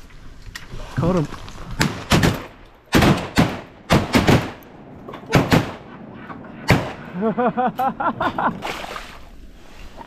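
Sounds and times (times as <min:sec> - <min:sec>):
shotgun shots: 0:01.8 - 0:04.6, 0:05.3 - 0:06.0, 0:06.6 - 0:07.0.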